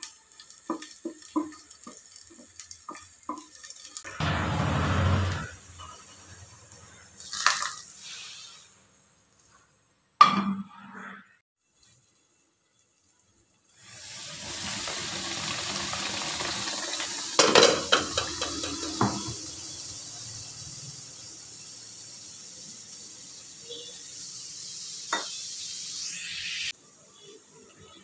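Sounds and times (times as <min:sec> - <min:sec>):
food sizzling in hot pan: 0:00.0 - 0:10.2, 0:11.6 - 0:28.0
metal clanks on pan: 0:17.4 - 0:19.3.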